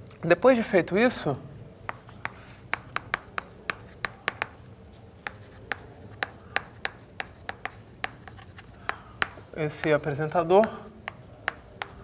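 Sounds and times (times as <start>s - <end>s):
chalk tapping on blackboard: 1.8s - 12.0s.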